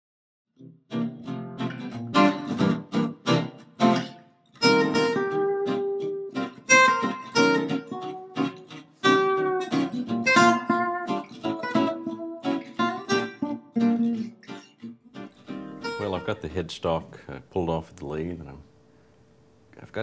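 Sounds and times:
guitar strumming chords: 0.6 - 18.6.

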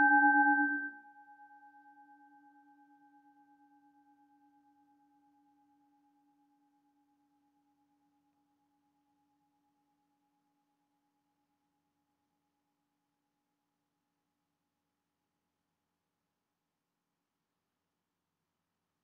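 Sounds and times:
singing bowl ringing: 0.0 - 1.0.

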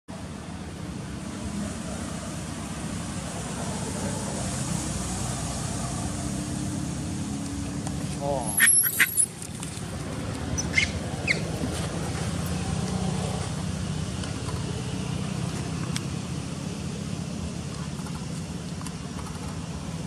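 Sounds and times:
monkey squeaks: 8.4 - 9.4, 10.5 - 11.5.

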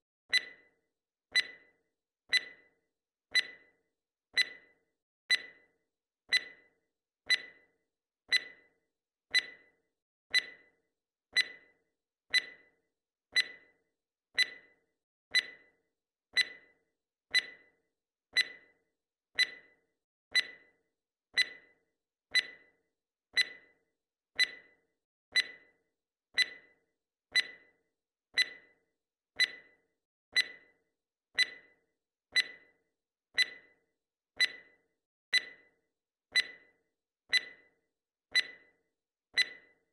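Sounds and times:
clock ticking: 7.3 - 7.6, 11.3 - 11.7, 12.3 - 12.7, 13.3 - 13.6, 32.3 - 32.7, 33.4 - 33.7, 34.4 - 35.6, 36.3 - 36.6.

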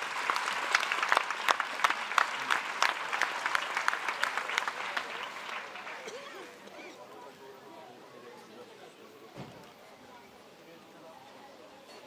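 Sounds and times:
spectators applauding: 0.0 - 6.6.

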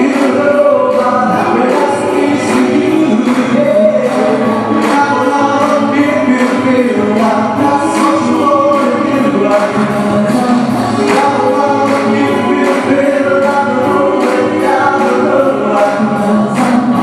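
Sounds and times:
live band playing pop song: 0.0 - 17.0
man and woman singing together: 0.0 - 17.0.

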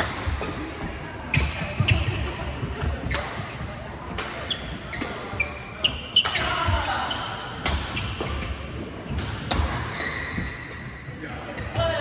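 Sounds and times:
racket hitting shuttlecock: 0.0 - 0.6, 4.1 - 5.3, 7.6 - 10.9
court shoes squeaking: 0.0 - 12.0.

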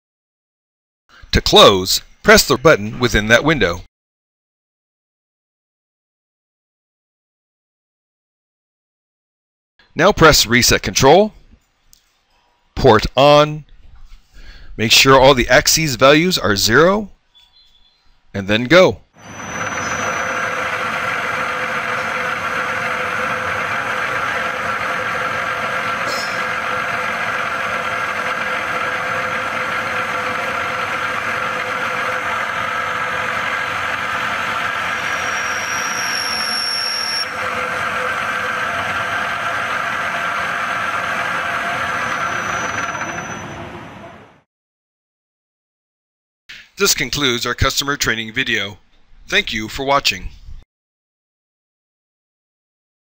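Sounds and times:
brief high whine: 19.2 - 44.4
milling machine spindle running: 19.2 - 44.4.

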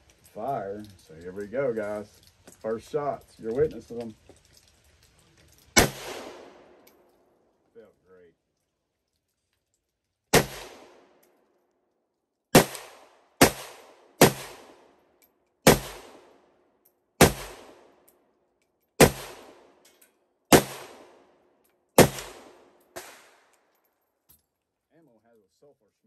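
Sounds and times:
rifle shots with echo: 5.8 - 6.8, 10.3 - 11.2, 12.6 - 15.0, 15.6 - 16.5, 17.2 - 18.0, 19.0 - 19.8, 20.5 - 21.4, 22.0 - 23.5.

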